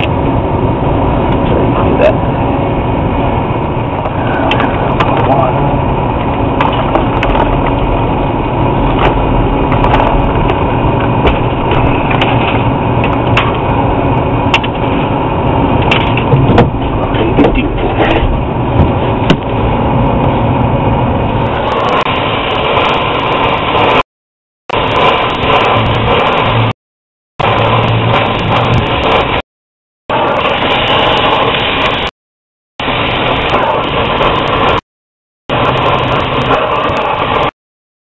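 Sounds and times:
torch flame rushing: 0.0 - 24.0, 24.7 - 26.8, 27.4 - 29.4, 30.1 - 32.1, 32.8 - 34.8, 35.5 - 37.5
sharp cracks and pops: 6.2 - 7.9, 8.8 - 15.1, 15.7 - 18.1.

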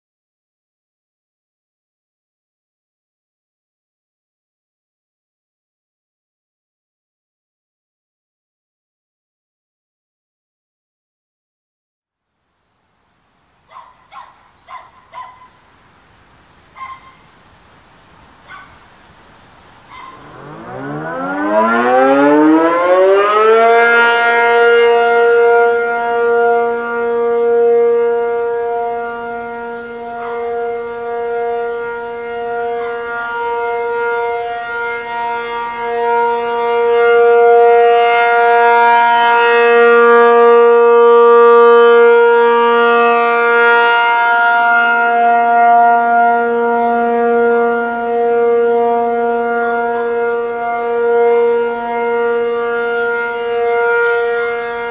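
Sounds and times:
distant rotating warning siren: 19.7 - 54.9.

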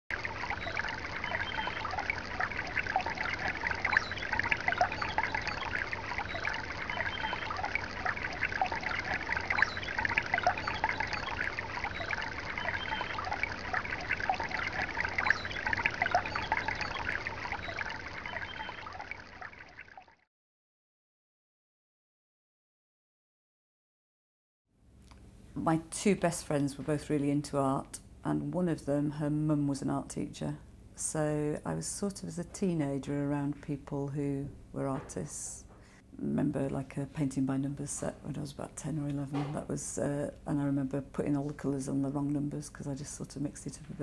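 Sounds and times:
water trickling and bubbling: 0.1 - 20.3, 36.5 - 44.0.

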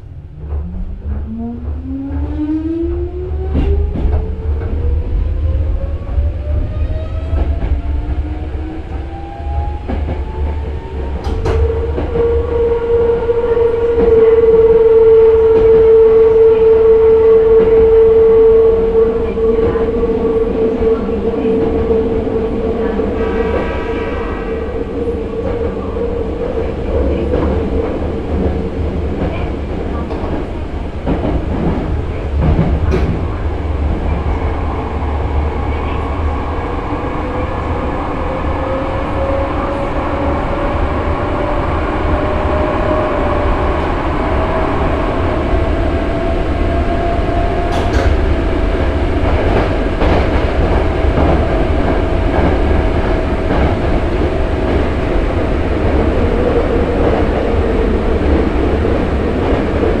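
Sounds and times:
train rumble: 0.0 - 60.0.

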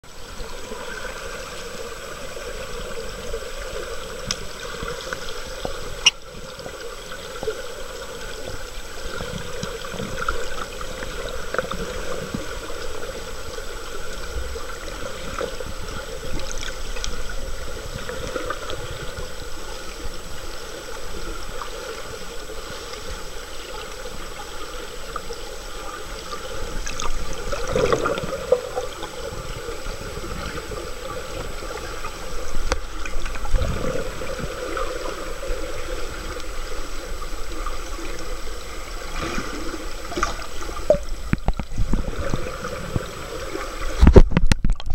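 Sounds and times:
faint water gurgles and ticks: 0.0 - 44.9
muffled underwater rush: 0.0 - 44.9.

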